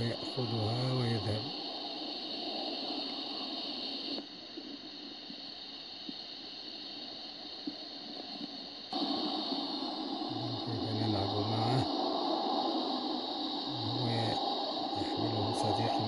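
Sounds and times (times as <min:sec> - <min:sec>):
steady hiss: 0:00.0 - 0:16.0
faint ticks: 0:02.4 - 0:09.0.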